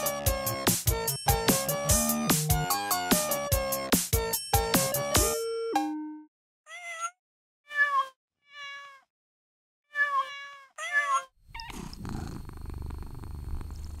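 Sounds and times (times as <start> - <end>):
cat meowing: 6.7 - 9.1, 9.9 - 12.4.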